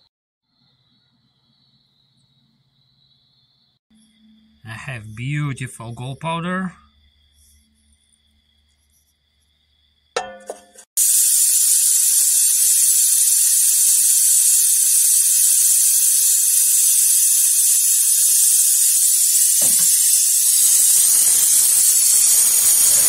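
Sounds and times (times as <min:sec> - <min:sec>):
high-pitched hiss: 0:11.0 - 0:23.0.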